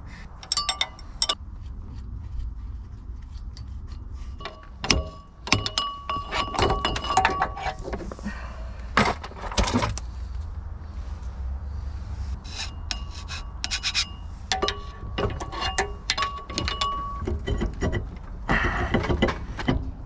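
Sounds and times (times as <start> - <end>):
metal clinks and knocks: 0.4 - 1.4, 3.5 - 8.2, 12.8 - 20.0.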